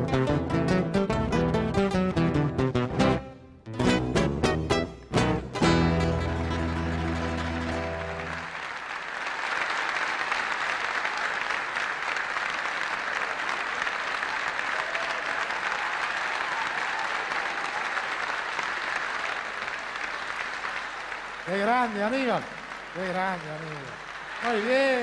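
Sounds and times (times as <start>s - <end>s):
acoustic guitar chord ringing: 0.2s - 8.4s
audience applauding: 6.0s - 25.0s.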